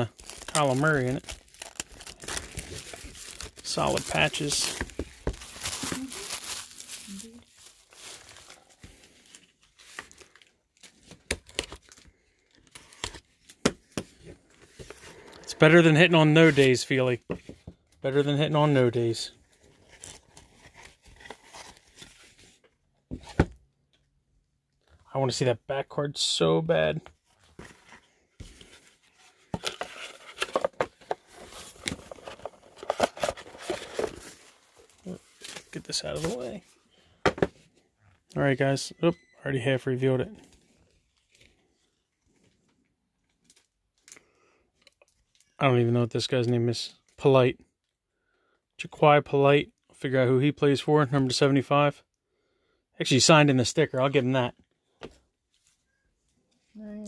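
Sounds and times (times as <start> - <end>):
cardboard packaging rustling: 0.0 - 16.8, 19.6 - 22.6, 27.2 - 36.7.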